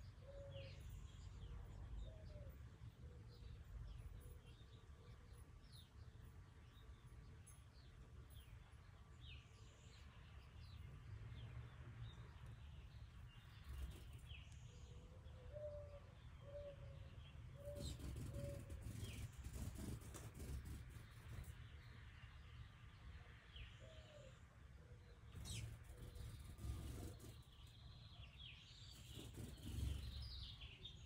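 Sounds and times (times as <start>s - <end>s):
faint bird chirps: 13.3s - 22.1s.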